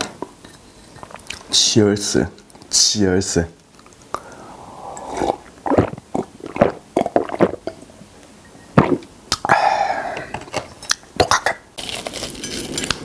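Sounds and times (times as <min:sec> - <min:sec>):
voiced breath out: 0:04.1 - 0:05.5, 0:09.5 - 0:10.4
person gulping a drink: 0:04.1 - 0:08.0, 0:08.7 - 0:10.6.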